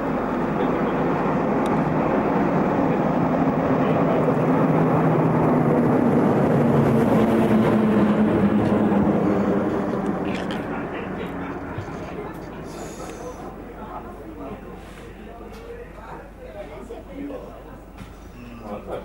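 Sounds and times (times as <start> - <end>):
diesel locomotive engine passing: 0.0 - 15.1.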